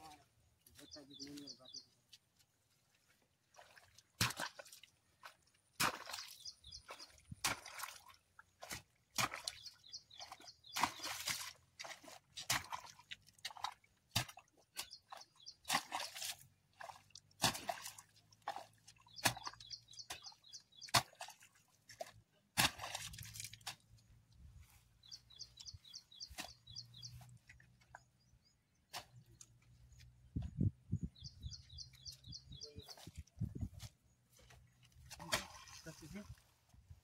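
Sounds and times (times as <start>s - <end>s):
bird chirping: 0.0s - 2.0s, 6.1s - 7.2s, 9.4s - 11.2s, 14.8s - 16.2s, 19.0s - 21.0s, 24.0s - 36.2s
spades squelching in mud: 3.6s - 24.1s.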